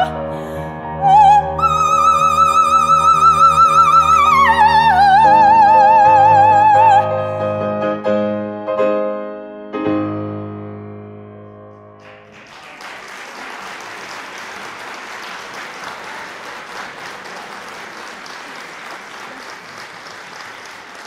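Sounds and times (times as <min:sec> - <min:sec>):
piano chord: 0:04.6 - 0:12.3
audience applause: 0:12.0 - 0:21.0.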